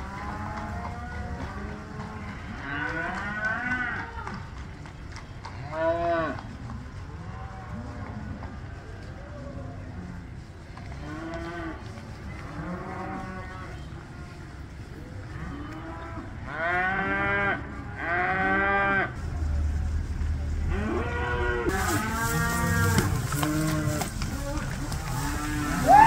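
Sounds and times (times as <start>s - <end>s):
steady low rumble: 17.6s - 26.0s
cattle mooing: 20.7s - 26.0s.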